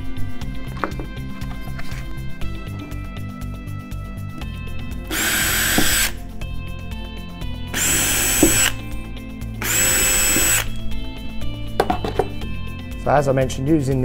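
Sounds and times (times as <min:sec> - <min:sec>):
cordless drill whining: 0:05.1 - 0:06.2, 0:07.7 - 0:08.8, 0:09.6 - 0:10.8.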